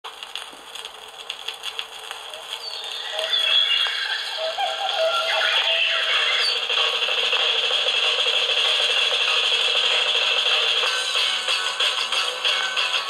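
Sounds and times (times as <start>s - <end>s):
record clicks: 0.1s - 4.6s
thin music from small speaker: 2.5s - 13.0s.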